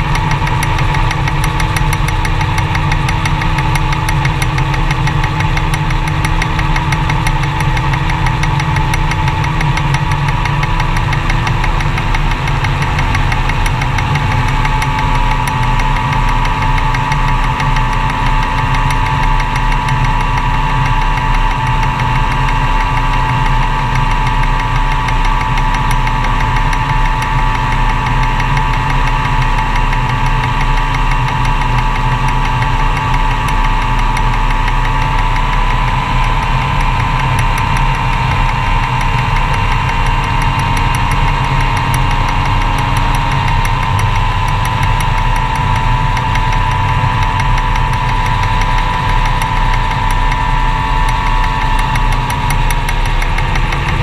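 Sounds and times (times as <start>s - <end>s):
aircraft engine and propeller: 0.0s - 54.0s.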